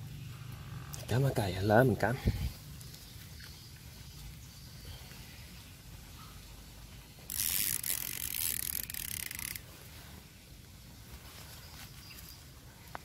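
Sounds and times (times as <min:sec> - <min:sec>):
fishing reel ratchet clicking: 0:07.3 - 0:09.6.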